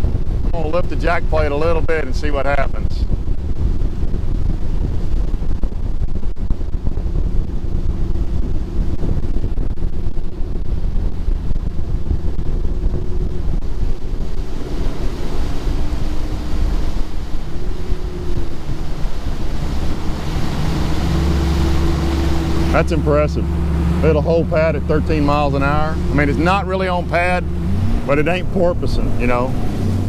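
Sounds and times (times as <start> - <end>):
boat engine running: 0.0 - 30.0
hull on water: 0.0 - 30.0
wind buffeting microphone: 0.0 - 30.0.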